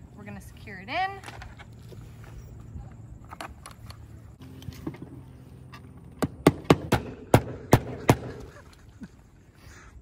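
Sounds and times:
hammer striking nails: 6.2s - 8.3s.

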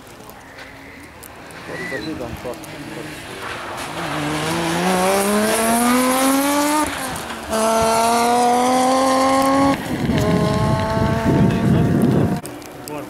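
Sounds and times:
rally car engine revving: 2.4s - 12.5s.

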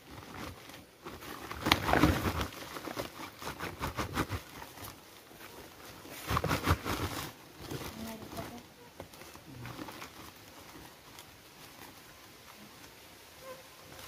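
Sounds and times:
plastic sacks rustling and flapping: 0.0s - 14.0s.

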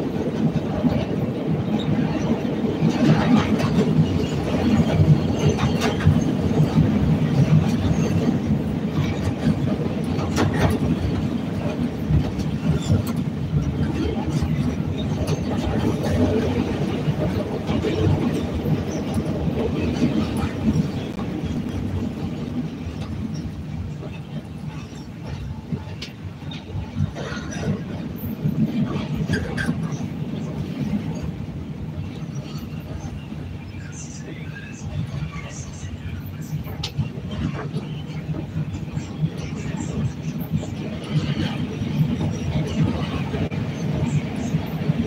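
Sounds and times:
sharp clicks of train wheels: 0.0s - 31.4s, 33.8s - 45.0s
train wheels rumbling on rail: 0.0s - 45.0s.

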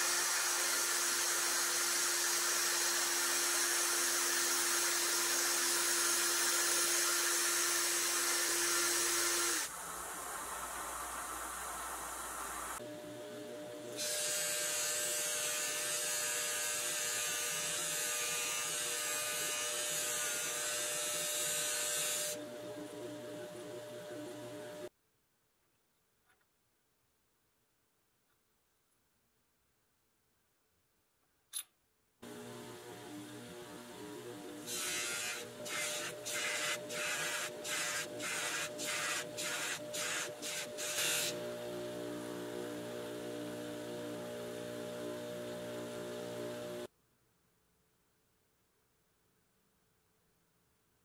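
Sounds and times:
bench grinder motor running: 32.2s - 46.9s
metal rod hissing on buffing wheel: 34.6s - 41.4s.

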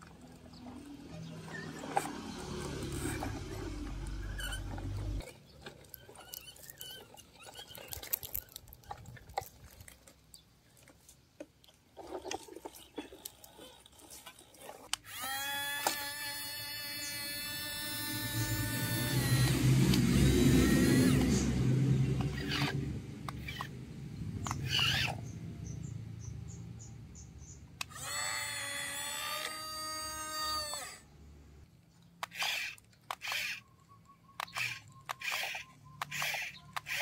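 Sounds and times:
electric toy motor whining: 0.0s - 9.0s, 12.1s - 23.8s, 24.4s - 25.3s, 27.8s - 31.1s, 32.2s - 33.7s, 34.4s - 37.0s.

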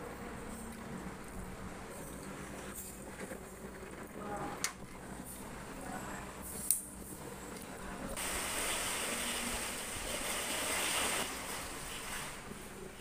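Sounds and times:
rain hissing: 8.1s - 13.0s.

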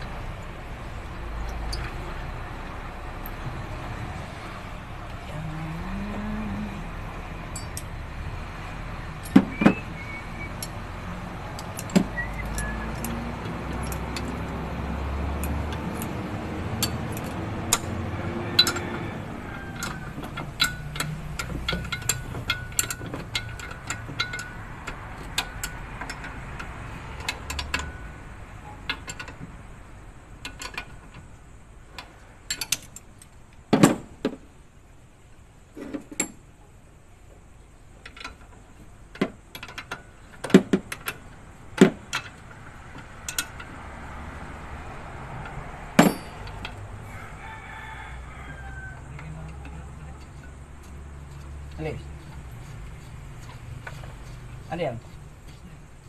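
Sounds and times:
hand tools clicking on metal: 9.2s - 29.5s, 32.0s - 33.6s, 38.0s - 46.9s, 49.1s - 56.0s.

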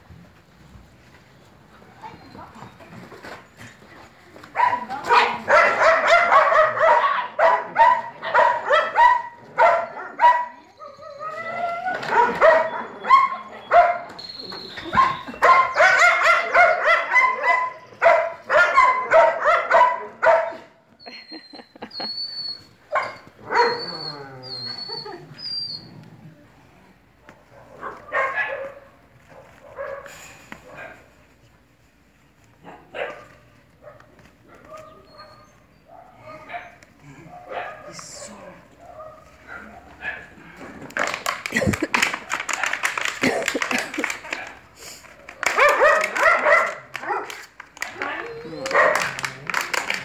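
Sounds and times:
puppies barking and yipping: 4.6s - 25.9s.

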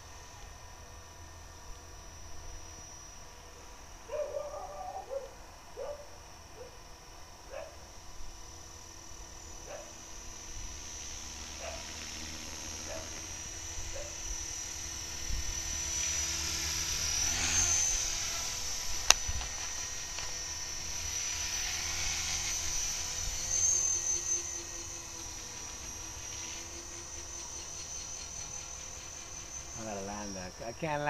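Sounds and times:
model helicopter motor whine: 0.0s - 31.0s
rotor rumble: 7.3s - 31.0s.

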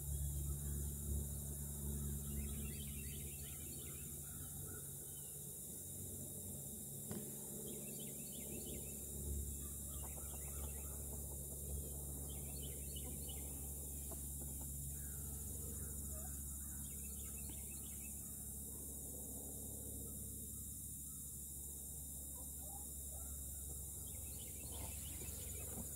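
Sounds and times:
steady low hum: 0.0s - 25.9s
birds chirping: 9.6s - 18.5s.

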